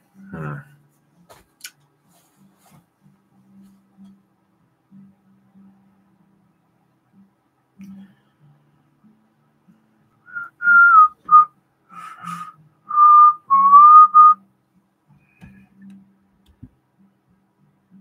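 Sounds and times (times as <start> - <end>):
person whistling a tune: 10.3 - 14.4.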